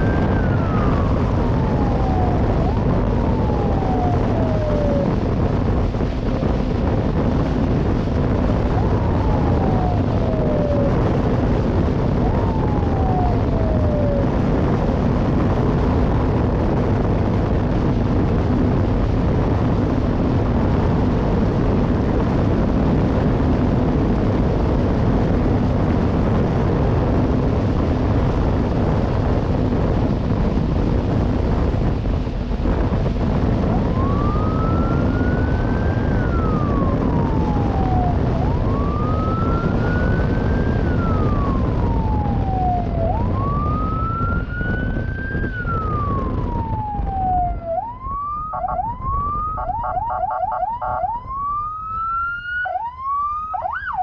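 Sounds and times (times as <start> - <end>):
police siren wailing: 0.0 - 18.0, 32.5 - 54.0
wind and road noise: 0.0 - 54.0.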